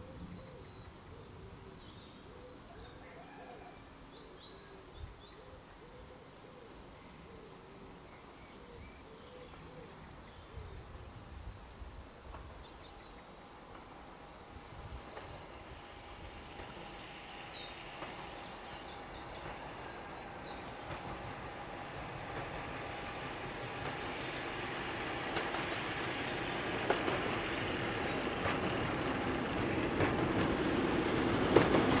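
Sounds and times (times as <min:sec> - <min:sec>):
low cooing bird calls: 0:00.0 - 0:11.3
distant train with whine: 0:11.9 - 0:32.0
small bird singing: 0:15.4 - 0:22.2.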